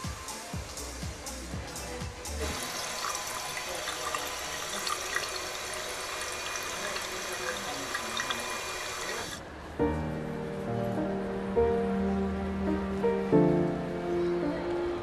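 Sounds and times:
water running into basin: 0:02.4 - 0:09.4.

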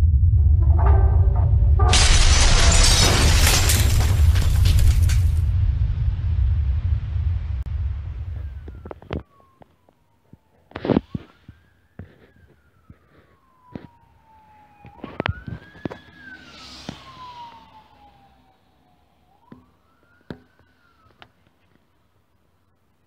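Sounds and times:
electronic siren wailing: 0:08.2 - 0:21.2
tyre noise of passing vehicle: 0:14.9 - 0:19.5.

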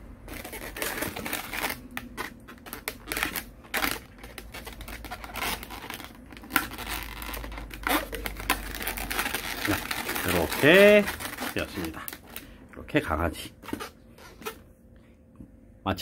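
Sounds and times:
hands rubbing latex balloons: 0:00.2 - 0:12.4.

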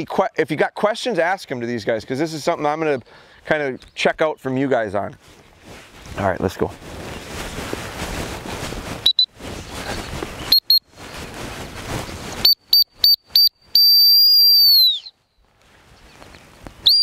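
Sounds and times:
whistle toots: 0:09.0 - 0:09.3, 0:10.5 - 0:10.8, 0:12.4 - 0:15.2
long whistle blast: 0:12.4 - 0:15.2.

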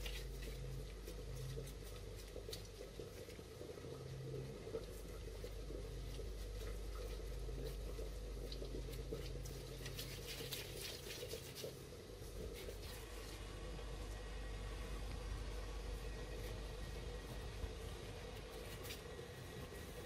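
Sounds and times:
wet squishing of mashed potato: 0:00.0 - 0:13.6
low steady hum: 0:00.0 - 0:20.0.

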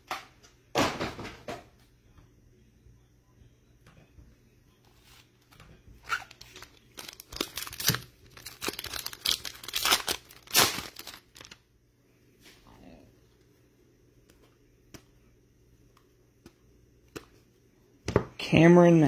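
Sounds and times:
foil pack tearing and crinkling: 0:06.0 - 0:11.6.

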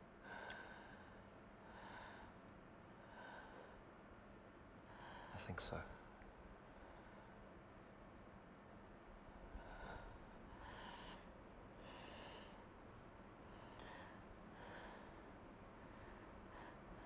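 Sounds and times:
person breathing: 0:09.5 - 0:12.7, 0:13.5 - 0:17.0.

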